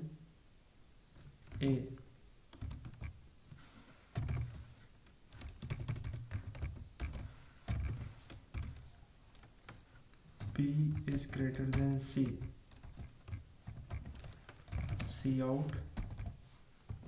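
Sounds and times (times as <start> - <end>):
typing on computer keyboard: 2.5 - 3.2, 4.2 - 4.6, 5.3 - 9.7, 10.4 - 17.0.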